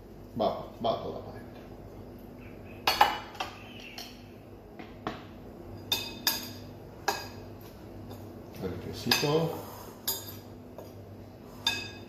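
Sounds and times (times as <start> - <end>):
spoon clinking against glass bowl: 11.6 - 12.0.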